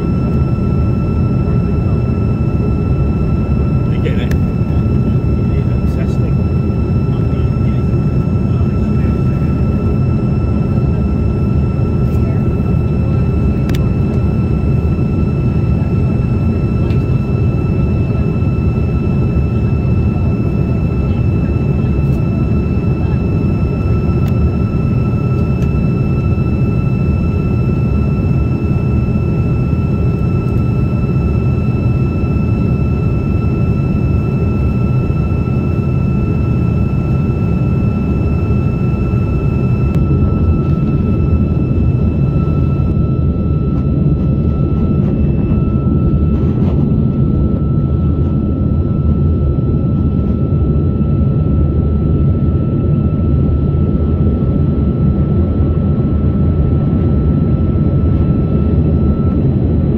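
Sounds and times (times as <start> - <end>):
low rush of engines and airflow: 0.0 - 59.9
thin steady whine: 0.0 - 59.9.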